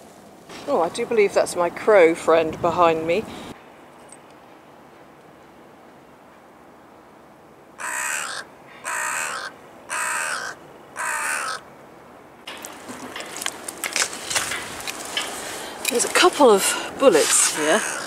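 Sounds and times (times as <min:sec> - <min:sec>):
crow cawing: 0:07.8 - 0:11.7, 0:17.6 - 0:18.0.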